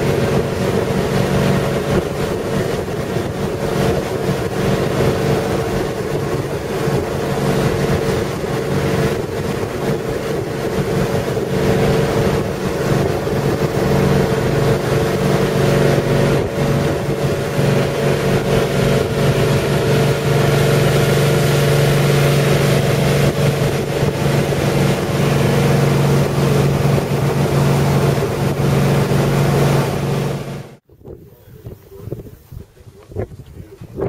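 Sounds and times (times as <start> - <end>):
motorboat engine droning: 0.0 - 30.8
rushing water: 0.0 - 30.8
wind on microphone: 0.0 - 34.0.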